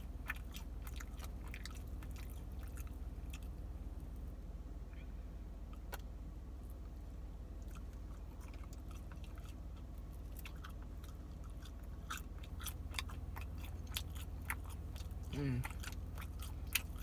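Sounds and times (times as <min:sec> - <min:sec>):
person chewing with wet smacks: 0:00.0 - 0:04.3, 0:05.7 - 0:17.0
steady low hum: 0:00.0 - 0:17.0
person humming: 0:15.3 - 0:15.7.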